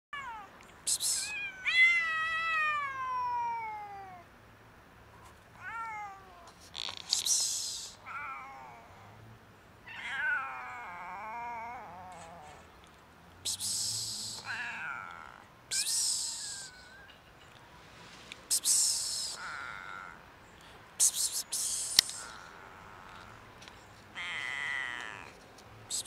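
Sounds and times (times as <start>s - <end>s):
short bursts of hissy noise: 0.8s - 1.4s, 6.5s - 8.0s, 13.5s - 14.5s, 17.9s - 19.5s, 21.0s - 22.3s
cat meowing: 1.2s - 4.3s, 5.6s - 6.6s, 8.0s - 9.0s, 9.8s - 12.6s, 14.2s - 15.5s, 19.3s - 20.2s, 24.1s - 25.4s.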